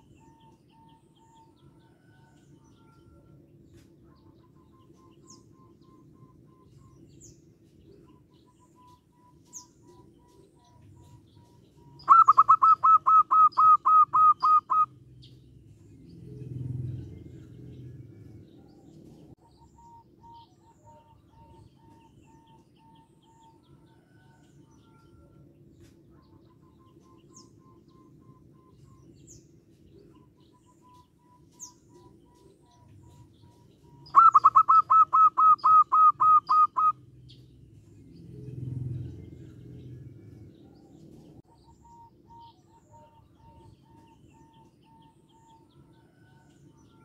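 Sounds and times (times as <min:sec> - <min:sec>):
dove singing clear notes: 0:00.0 - 0:47.0
small birds calling: 0:03.8 - 0:47.0
distant dove calls: 0:04.0 - 0:47.0
low rumble: 0:15.0 - 0:19.4, 0:37.1 - 0:41.4.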